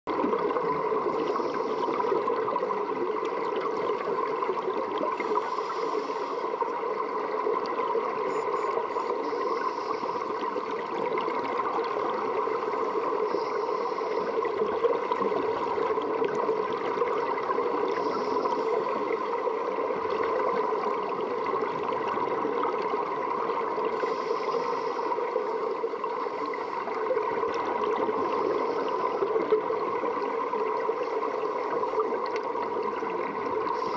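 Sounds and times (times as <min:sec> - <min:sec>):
underwater hum: 0:00.1 - 0:33.9
hiss of exhaled bubbles: 0:09.2 - 0:33.9.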